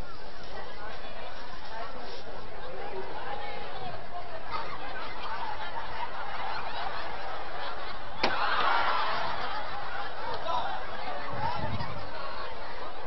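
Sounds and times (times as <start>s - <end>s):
large audience laughing: 2.7s - 13.0s
sharp crack: 8.2s - 8.8s.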